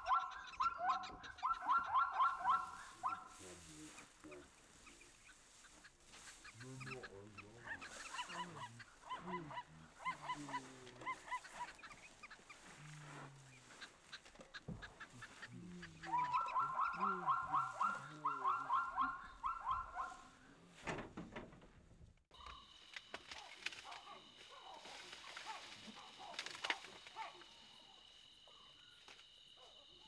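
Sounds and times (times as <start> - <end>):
rapid bird cackling: 0.0 - 12.8, 13.6 - 20.1
birds calling: 0.0 - 20.3, 22.3 - 30.0.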